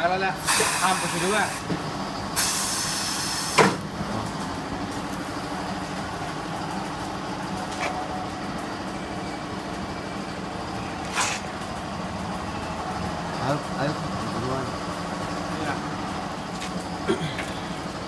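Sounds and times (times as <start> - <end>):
compressed air hissing: 0.4 - 1.7, 2.4 - 3.8.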